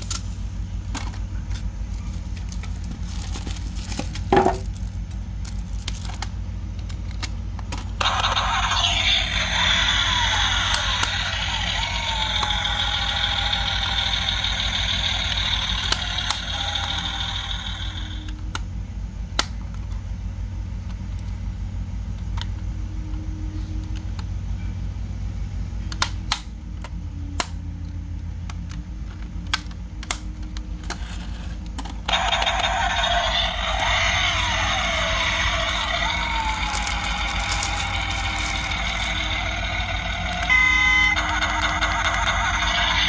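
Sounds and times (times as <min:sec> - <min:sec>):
engine sound effect from toy speaker: 0:07.7 - 0:18.6, 0:29.6 - 0:43.0.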